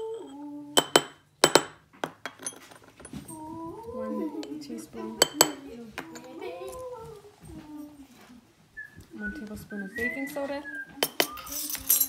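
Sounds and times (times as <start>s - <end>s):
spoons clinking on glass jar: 11.0s - 12.0s.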